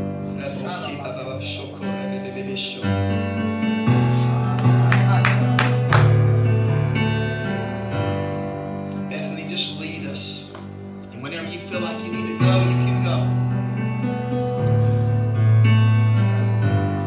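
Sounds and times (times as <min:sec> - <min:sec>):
electronic keyboard chords: 0:00.0 - 0:17.0.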